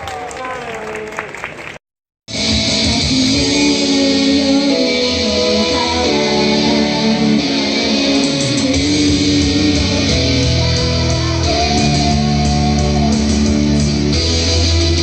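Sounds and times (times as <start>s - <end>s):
pop song over loudspeakers: 2.3s - 15.0s
woman singing into microphone: 2.8s - 13.8s.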